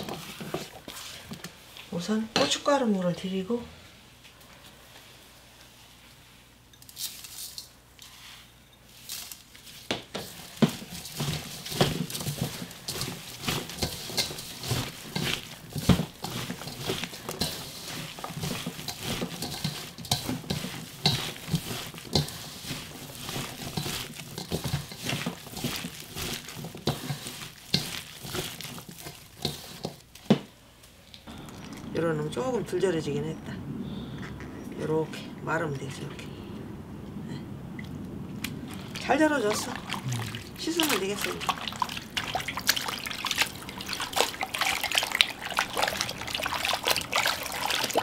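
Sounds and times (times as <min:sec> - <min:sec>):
hand mixing radish in metal bowl: 0:00.0 - 0:03.4, 0:06.9 - 0:30.4, 0:38.6 - 0:48.0.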